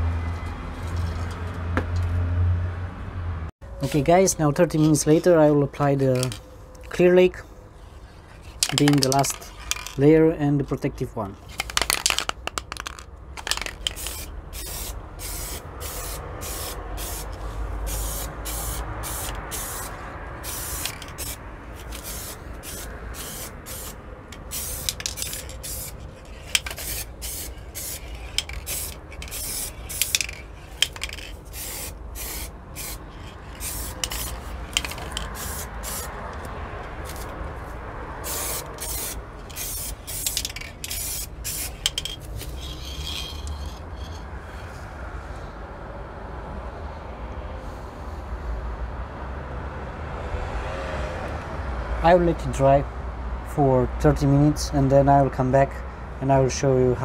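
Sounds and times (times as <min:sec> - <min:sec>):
aerosol spray can hissing: 0:13.5 - 0:36.1, 0:38.2 - 0:43.4.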